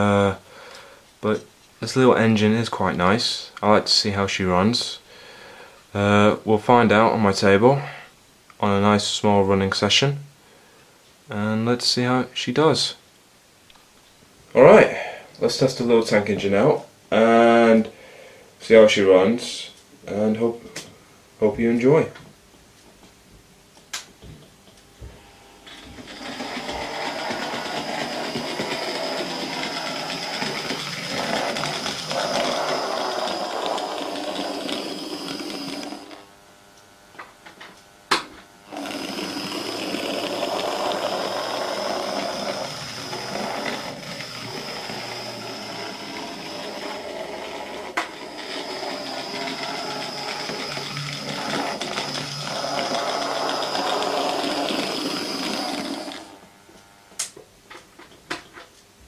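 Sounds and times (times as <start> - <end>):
model train motor whining: 25.7 - 36.3, 38.7 - 56.4
wheels on rails: 26.0 - 36.1.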